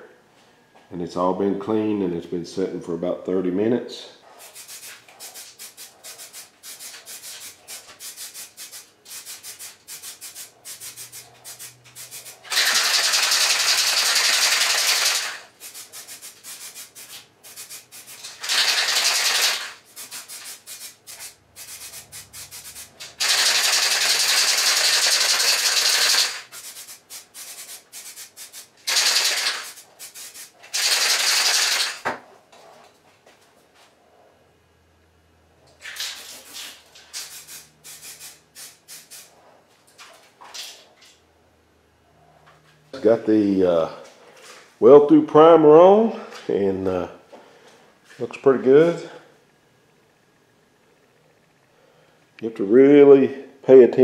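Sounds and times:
aerosol can mixing ball rattling: 4.4 - 32.0, 35.9 - 39.3
aerosol spray hissing: 4.4 - 32.0, 36.2 - 39.3.

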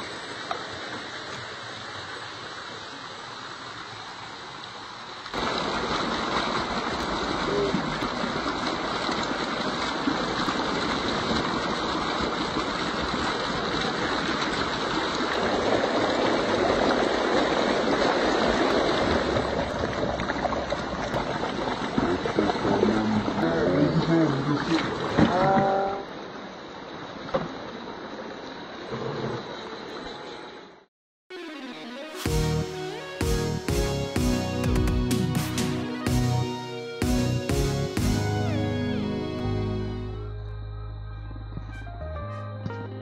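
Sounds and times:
stream water splashing over rocks: 0.0 - 29.6.

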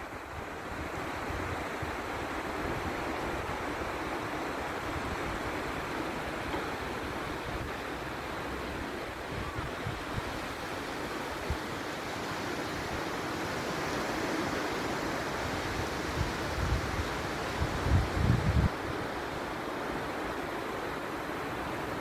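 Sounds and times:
wind buffeting microphone: 15.5 - 19.2.

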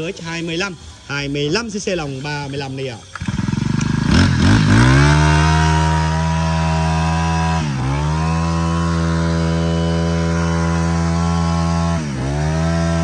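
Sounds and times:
brush cutter engine revving: 1.9 - 13.0.

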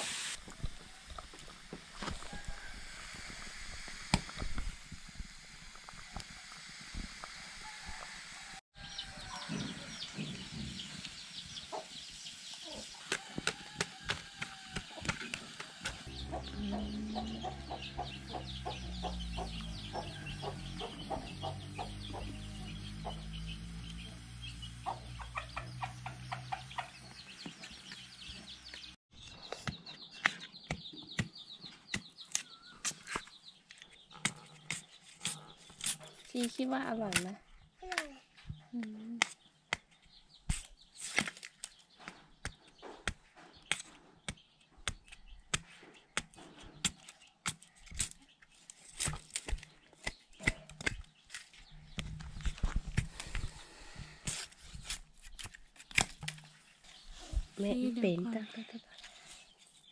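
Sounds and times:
chickens clucking: 9.0 - 28.9
low droning: 15.9 - 29.0.

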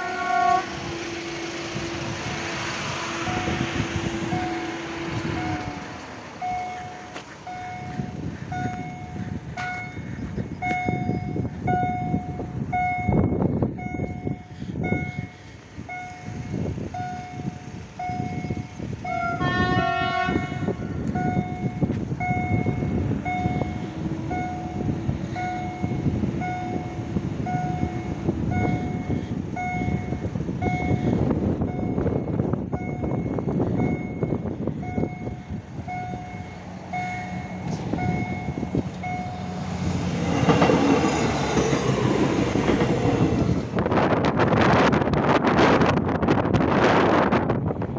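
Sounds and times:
distant train horn: 0.0 - 6.9, 19.1 - 21.2
wind rumbling on microphone: 0.0 - 47.9
level crossing signal beeping: 3.2 - 19.4, 21.1 - 43.4.

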